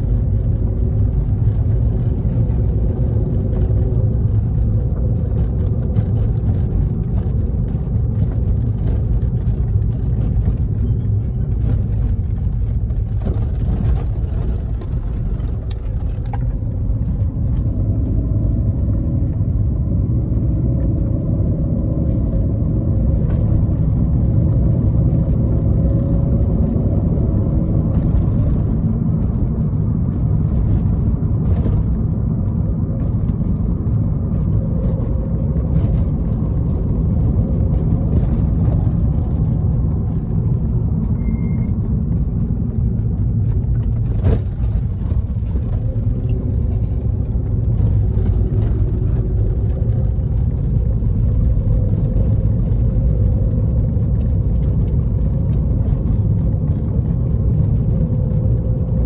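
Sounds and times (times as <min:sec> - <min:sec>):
car engine and tyre rumble: 0:00.0 - 0:59.0
faint beep: 0:41.2 - 0:41.7.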